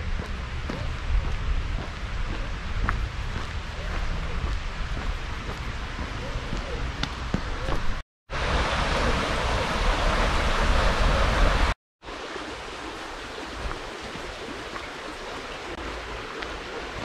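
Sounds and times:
stream water flowing: 8.3 - 17.0.

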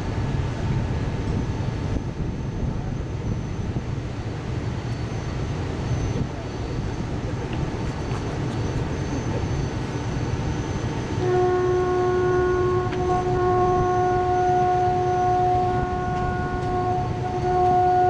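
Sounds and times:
train rolling along track: 0.0 - 18.0
steam locomotive whistle blast: 11.0 - 18.0.

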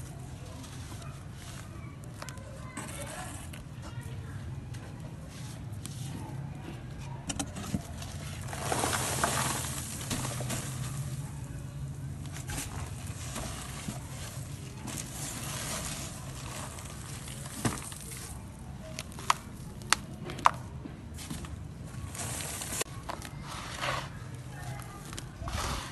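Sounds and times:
sand crumbling into a bowl: 8.2 - 18.4.

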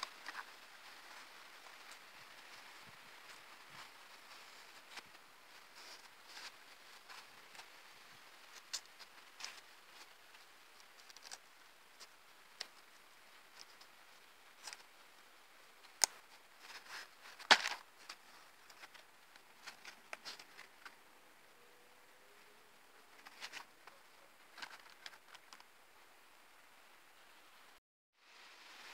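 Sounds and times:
knife sheath handling rustles: 16.0 - 20.9.

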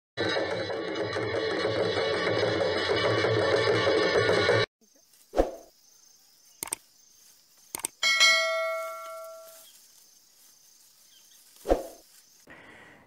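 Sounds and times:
mouse clicks: 6.6 - 6.8, 7.7 - 7.9
bell chime: 8.0 - 9.6.

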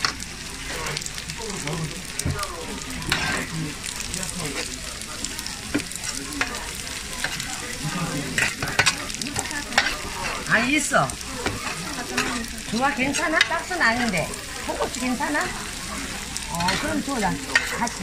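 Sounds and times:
food sizzling: 0.0 - 18.0
metal spatula scraping and clinking: 3.0 - 3.6, 7.2 - 7.6, 8.3 - 10.5, 11.4 - 15.6, 16.5 - 18.0.

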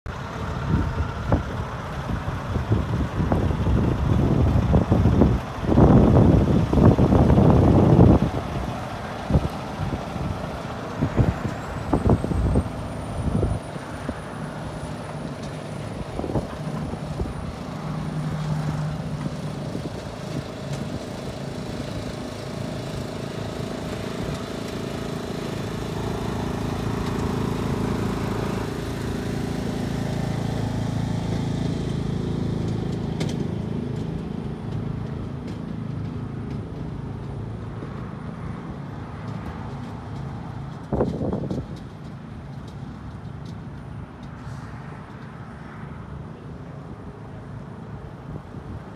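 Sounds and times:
truck diesel engine: 0.1 - 48.9.

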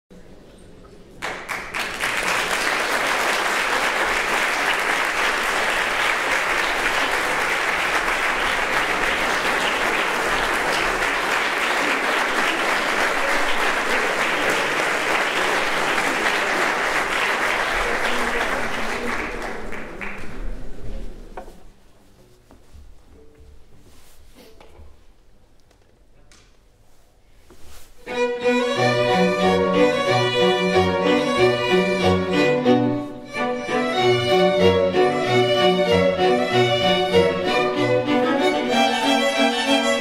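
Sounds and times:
audience applauding: 1.2 - 20.7.

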